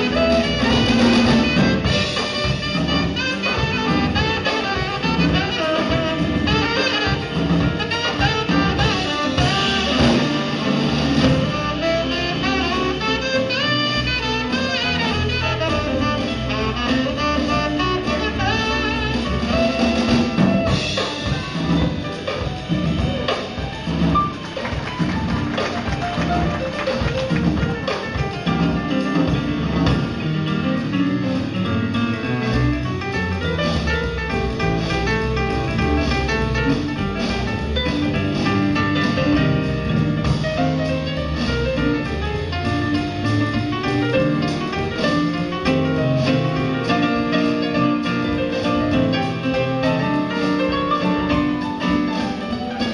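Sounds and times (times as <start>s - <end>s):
saxophone melody: 0.0s - 21.9s
drum kit: 0.0s - 52.9s
jazz band playing: 0.0s - 52.9s.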